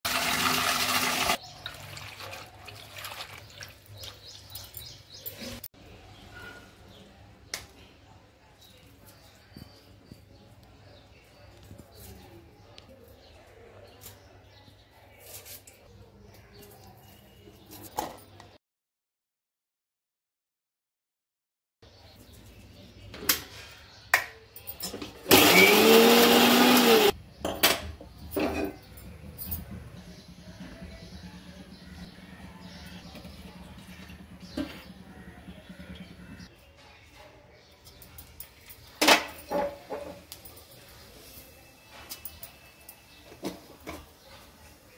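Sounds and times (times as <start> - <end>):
electric blender motor: 0.1 - 1.4, 25.3 - 27.1
tap water pouring onto leaves: 0.1 - 4.2
water dripping and splashing: 1.6 - 4.2.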